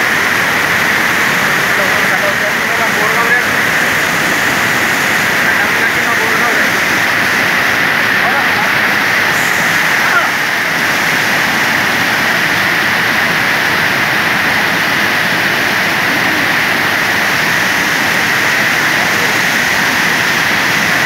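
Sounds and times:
water rushing over weir: 0.0s - 21.0s.

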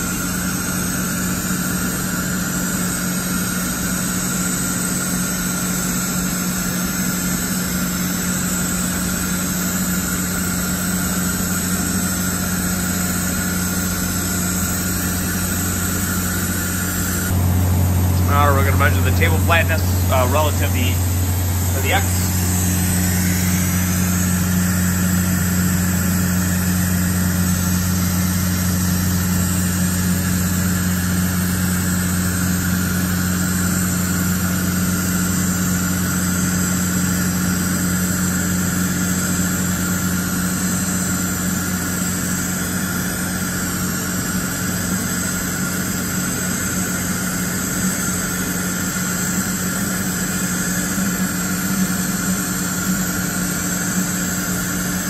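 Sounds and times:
high machine whine: 0.0s - 55.0s
machine humming: 6.0s - 32.1s.

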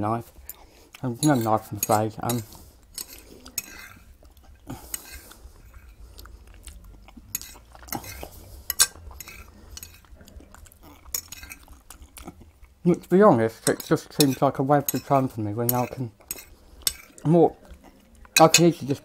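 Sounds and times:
fork scraping a plate: 0.5s - 4.2s, 4.8s - 6.0s, 7.2s - 10.2s, 10.8s - 12.2s, 13.6s - 19.0s.

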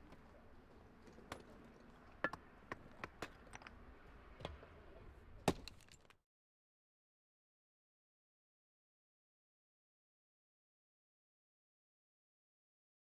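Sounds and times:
low steady background noise: 0.0s - 6.2s.

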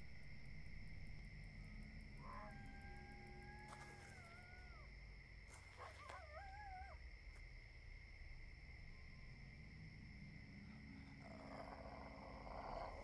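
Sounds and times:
coyote howls: 1.6s - 4.9s, 5.5s - 7.0s, 10.8s - 13.0s.

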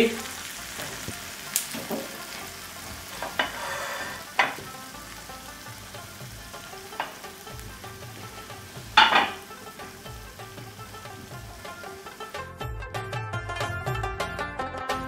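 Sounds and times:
gravy sizzling in a wok: 0.0s - 12.7s
knock: 1.8s - 2.1s.

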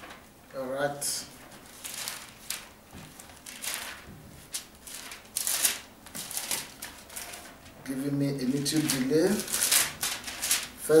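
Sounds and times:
book pages turning: 1.4s - 7.7s, 8.5s - 10.8s.

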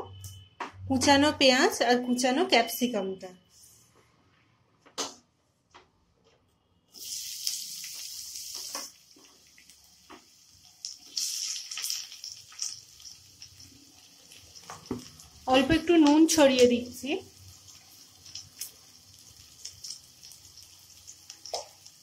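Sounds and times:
vegetables sizzling in hot oil: 7.0s - 22.0s.

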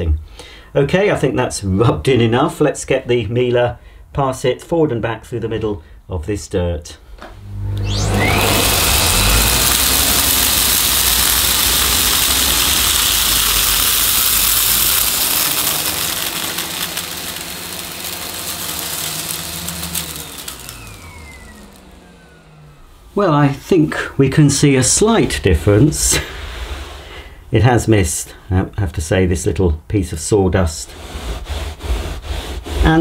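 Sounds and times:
vacuum cleaner motor whining: 7.2s - 24.4s.

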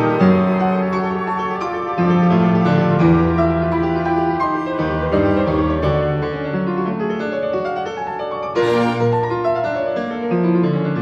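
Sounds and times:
slow piano music: 0.0s - 11.0s.

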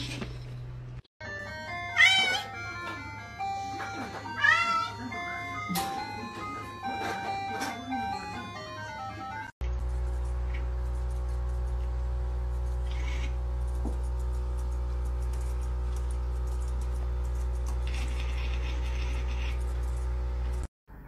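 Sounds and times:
steady low hum: 9.6s - 20.7s.

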